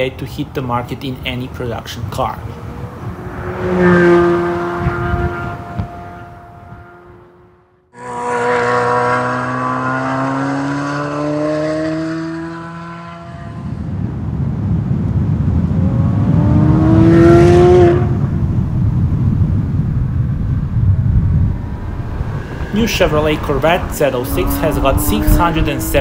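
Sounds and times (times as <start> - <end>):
road and wind noise: 0.0 - 26.0
car engine revving hard: 2.4 - 7.4, 8.0 - 13.8, 15.6 - 19.2, 21.5 - 26.0.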